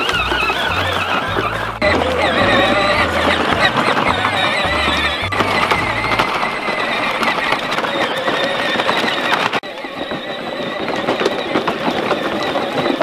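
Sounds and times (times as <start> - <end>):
plastic wheels crunching gravel: 0.0 - 13.0
toy tractor motor whine: 0.0 - 13.0.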